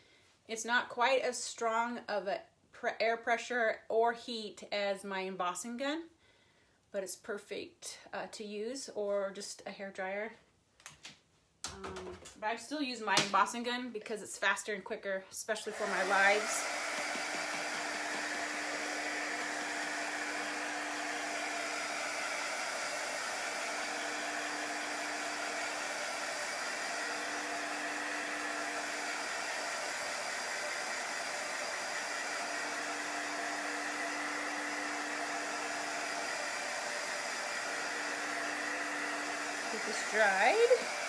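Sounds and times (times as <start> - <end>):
heat gun blowing air: 15.7 - 41.0.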